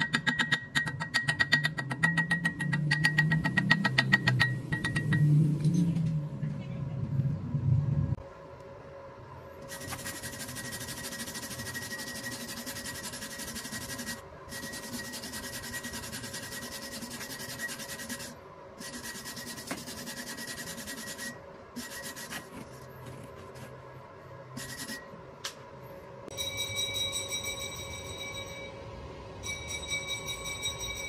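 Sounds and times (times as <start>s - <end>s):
wire brush scrubbing metal: 9.7s - 22.7s.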